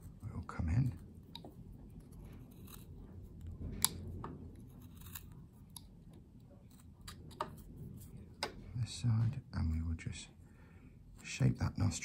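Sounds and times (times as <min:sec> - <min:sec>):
knife carving wood: 0:00.0 - 0:08.6.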